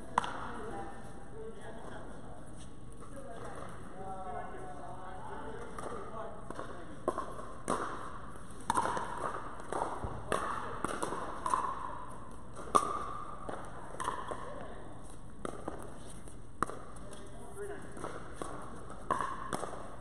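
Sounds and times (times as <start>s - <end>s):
paddles striking plastic ball: 5.6s - 14.6s, 17.9s - 20.0s.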